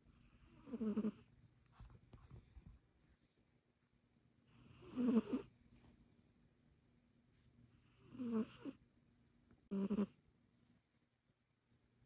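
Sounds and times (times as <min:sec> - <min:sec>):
kitten snoring: 0:00.1 - 0:01.3, 0:04.4 - 0:05.5, 0:07.8 - 0:08.8, 0:09.7 - 0:10.2.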